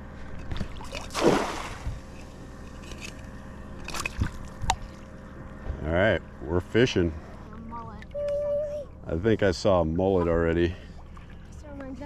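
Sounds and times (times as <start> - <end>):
trap splashing into water: 0.6 - 2.0.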